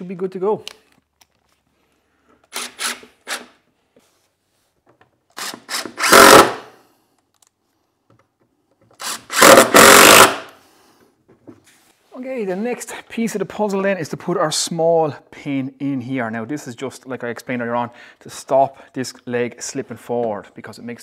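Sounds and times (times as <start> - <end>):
impact driver driving screws: 2.5 - 3.6, 5.3 - 6.7, 8.9 - 10.5.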